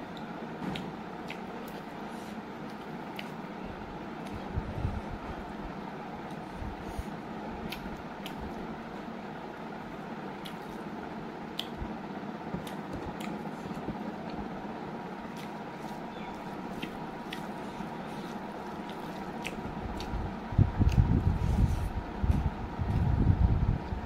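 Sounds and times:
chewing: 0:15.3 - 0:20.2.

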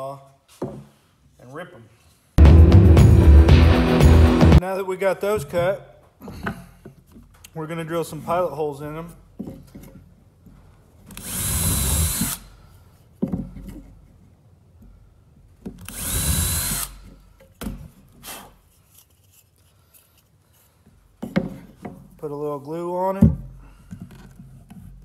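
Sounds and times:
cordless drill boring wood: 0:11.1 - 0:12.5, 0:15.8 - 0:17.1.

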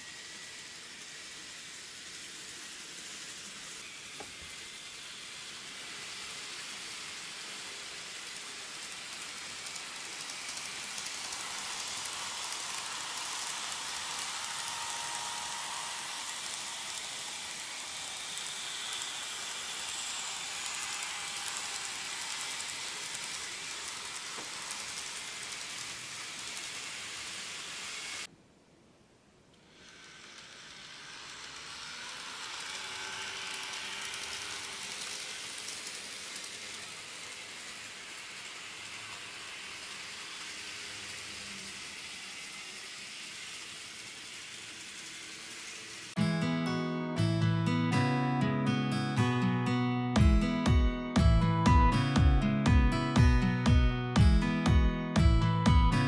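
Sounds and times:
model trains running on track: 0:00.0 - 0:28.3, 0:29.7 - 0:46.2.

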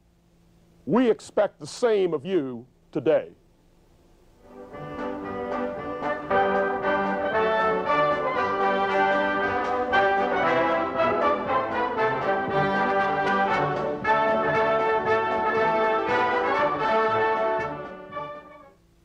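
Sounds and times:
orchestral music led by brass: 0:04.4 - 0:18.7.

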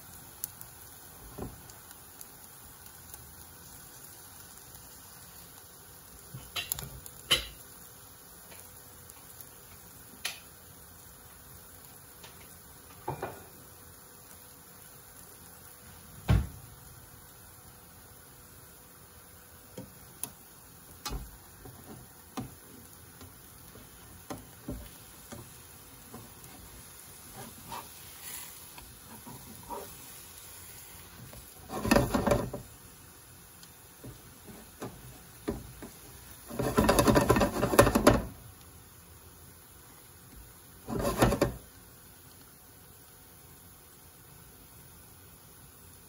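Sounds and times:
utensil scraping a pan: 0:24.7 - 0:32.7, 0:36.4 - 0:38.3, 0:40.8 - 0:41.6.

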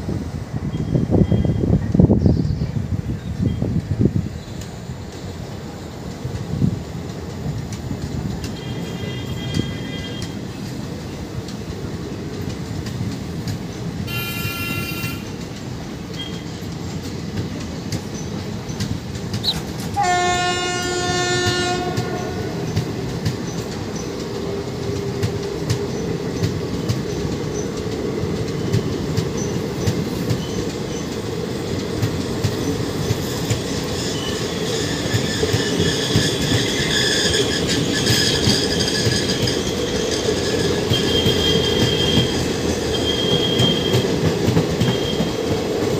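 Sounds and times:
train wheels clickety-clack: 0:03.6 - 0:45.9
train horn blast: 0:08.5 - 0:10.4, 0:14.1 - 0:15.4, 0:19.9 - 0:22.7
wheel squeal: 0:33.7 - 0:44.2, 0:44.8 - 0:45.4.

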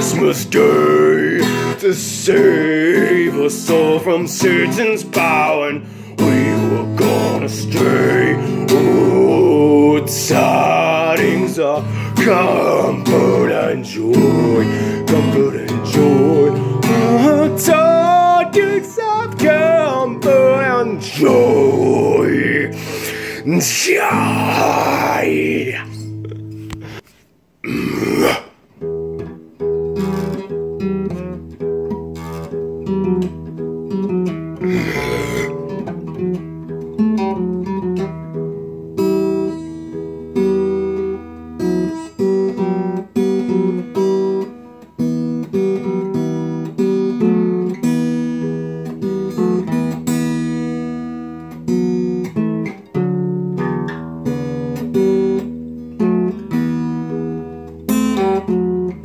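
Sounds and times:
acoustic guitar strumming: 0:00.0 - 0:27.2, 0:28.1 - 0:59.0.

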